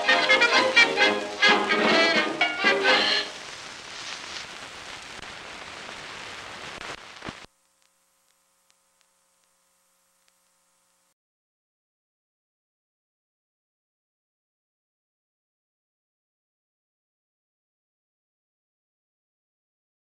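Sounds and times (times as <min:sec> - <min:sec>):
faint hum: 0:00.0 - 0:11.2
film soundtrack hiss and crackle: 0:00.0 - 0:11.2
small ticks: 0:06.8 - 0:11.1.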